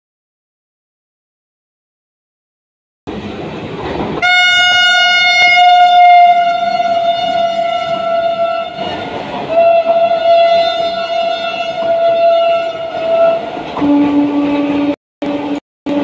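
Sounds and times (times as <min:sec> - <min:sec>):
train rumbling at speed: 0:03.1 - 0:16.0
train horn blasts: 0:04.2 - 0:16.0.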